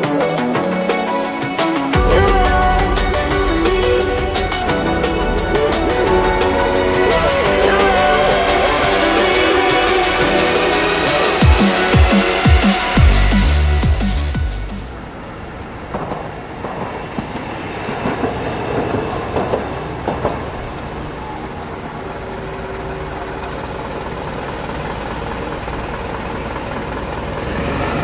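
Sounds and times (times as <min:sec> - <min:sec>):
tram rolling rumble: 0:00.2 - 0:12.0, 0:14.9 - 0:28.0
tram wheels clattering: 0:14.9 - 0:28.0.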